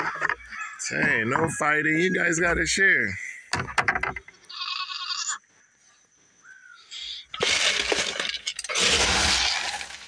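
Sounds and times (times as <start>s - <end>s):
goat bleating: 4.5s - 5.4s
feed pellets rustling in plastic bin: 7.3s - 10.0s.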